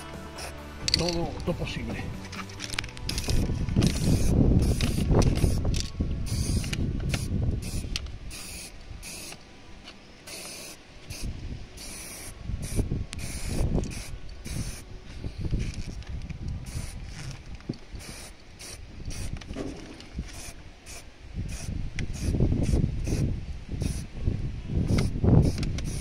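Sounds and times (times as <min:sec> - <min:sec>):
spray can hissing in bursts: 0:00.0 - 0:01.2, 0:03.1 - 0:09.4, 0:10.2 - 0:15.7, 0:16.6 - 0:17.0, 0:17.9 - 0:19.4, 0:20.3 - 0:24.1, 0:24.9 - 0:26.0.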